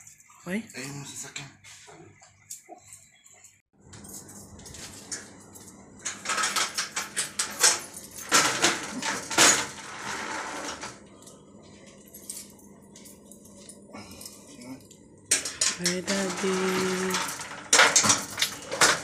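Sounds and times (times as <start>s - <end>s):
metal gate rattling and clanking: 4.0s - 11.0s, 15.3s - 19.0s.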